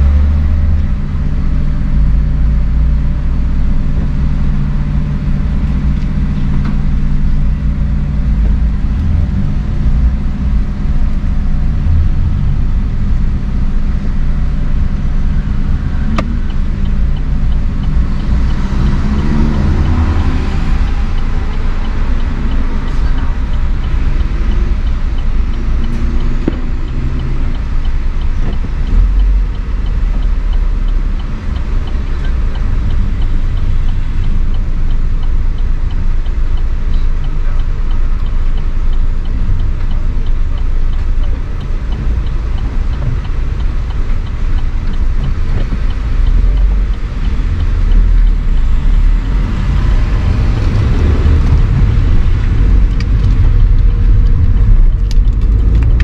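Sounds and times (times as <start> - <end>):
car traffic rumble: 0.0 - 56.0.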